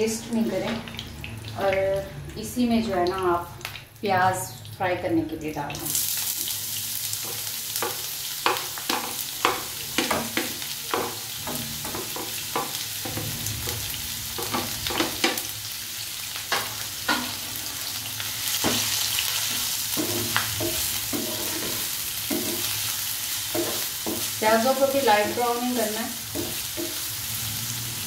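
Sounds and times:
onions sizzling in hot oil: 0.0s - 28.0s
spatula tapping and scraping pan: 7.2s - 13.8s, 14.4s - 15.5s, 16.5s - 17.4s, 18.6s - 25.4s, 26.3s - 27.1s.

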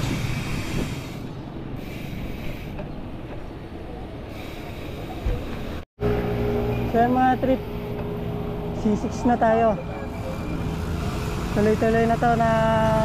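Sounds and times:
wind rush on microphone: 0.0s - 1.6s.

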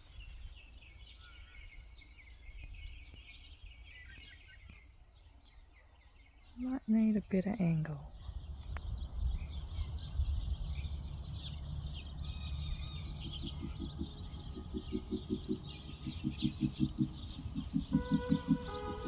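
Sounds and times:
birds chirping and whistling: 0.0s - 19.0s
low rumble: 8.2s - 19.0s
background music pulsing low note: 9.4s - 19.0s.

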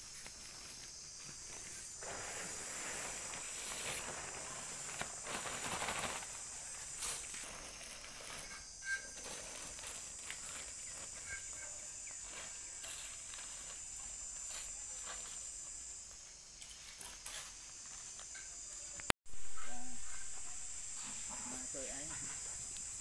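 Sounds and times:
steps in loose sand: 0.0s - 18.2s
high-pitched insect drone: 0.0s - 23.0s.

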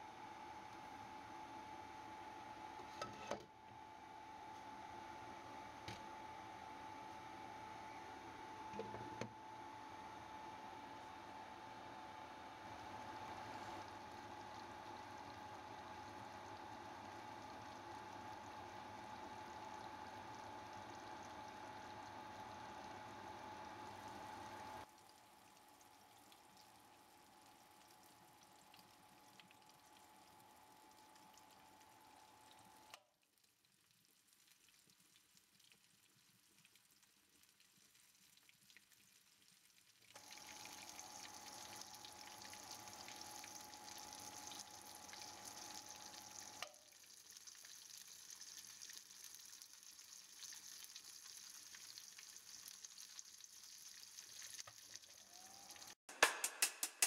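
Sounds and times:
oil sizzling in a pan: 40.2s - 56.0s.

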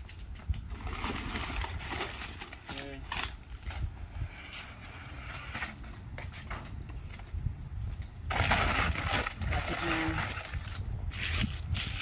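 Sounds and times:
packing paper rustling: 0.6s - 3.8s, 8.3s - 12.0s.

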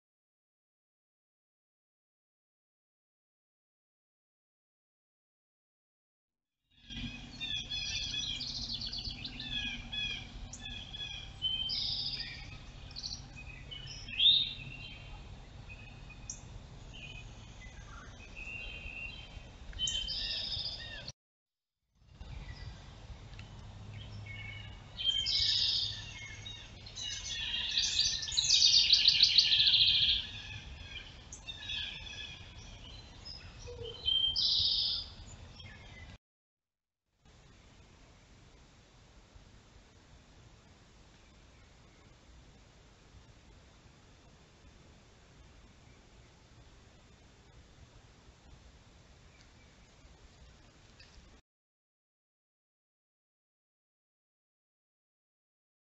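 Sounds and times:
songbirds singing and chirping: 6.8s - 21.1s, 22.1s - 36.2s, 48.4s - 51.2s
low steady hum: 6.9s - 21.1s, 22.1s - 34.4s, 37.2s - 51.4s.

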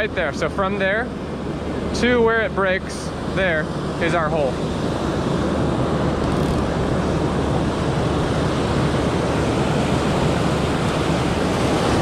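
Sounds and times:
waves breaking on sand: 3.1s - 12.0s.

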